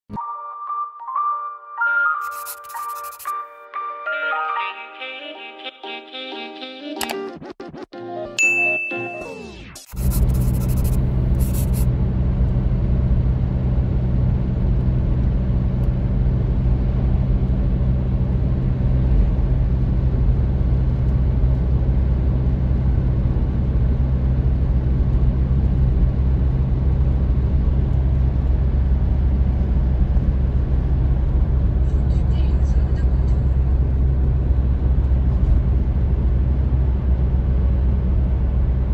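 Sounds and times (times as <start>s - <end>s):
car cabin road rumble: 11.1s - 38.9s.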